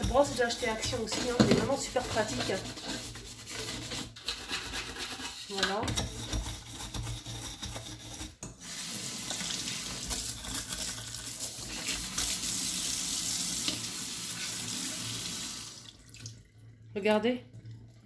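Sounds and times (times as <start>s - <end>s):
brush scrubbing: 0.0s - 8.4s, 10.1s - 12.4s
tap water running into metal sink: 8.6s - 16.7s.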